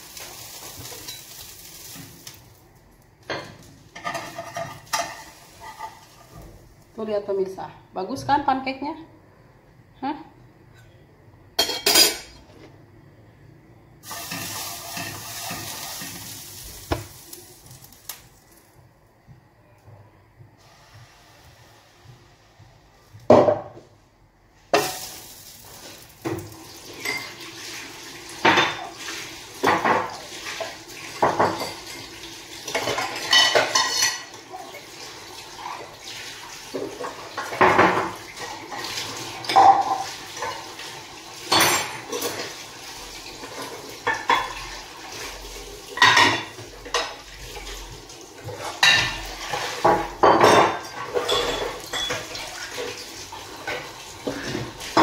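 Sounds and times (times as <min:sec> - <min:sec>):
dishes and cutlery clinking: 0:03.3 - 0:06.4, 0:11.6 - 0:12.5, 0:26.9 - 0:27.4, 0:31.2 - 0:34.6, 0:39.4 - 0:40.6, 0:41.5 - 0:42.6, 0:43.4 - 0:44.7, 0:46.0 - 0:47.3, 0:48.4 - 0:52.9.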